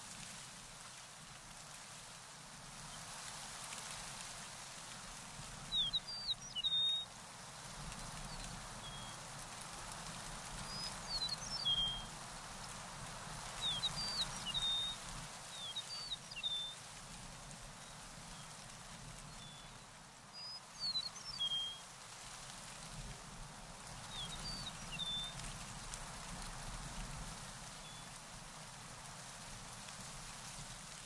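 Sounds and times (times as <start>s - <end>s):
outdoor background hiss: 0.0s - 31.0s
songbird singing high chirps: 5.7s - 7.1s, 10.6s - 12.1s, 13.6s - 16.8s, 20.4s - 21.8s, 24.1s - 25.4s.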